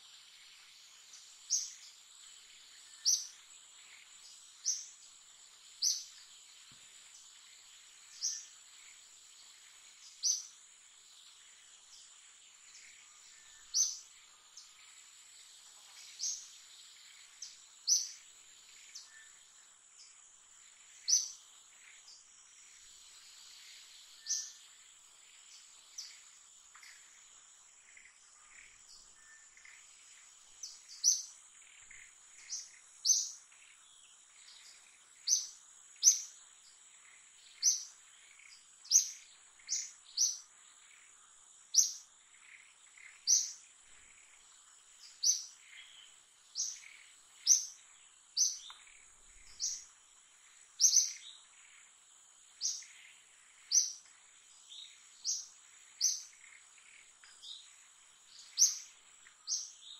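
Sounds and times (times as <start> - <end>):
bird chirping: 0.0 - 59.9.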